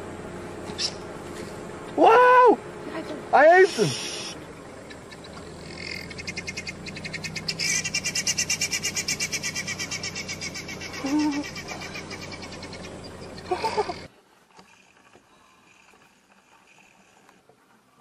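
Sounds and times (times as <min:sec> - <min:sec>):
animal chirping trill: 0:04.2 - 0:14.1.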